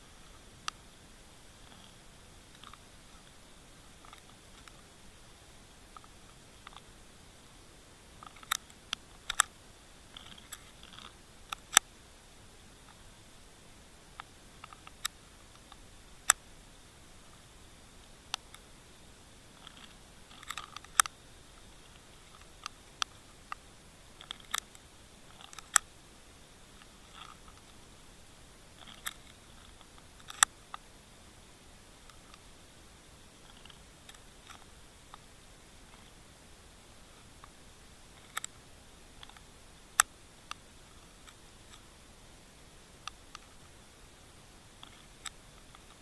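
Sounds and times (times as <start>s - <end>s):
faint hiss: 0.0s - 46.0s
sharp underwater clicks and snaps: 8.2s - 11.9s, 21.9s - 25.9s.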